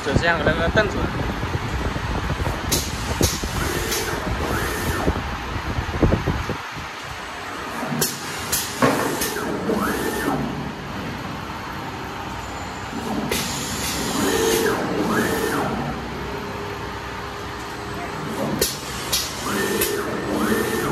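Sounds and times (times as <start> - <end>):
printing press motor whine: 2.6 - 5.3, 7.3 - 20.9
pneumatic hisses: 13.0 - 15.7.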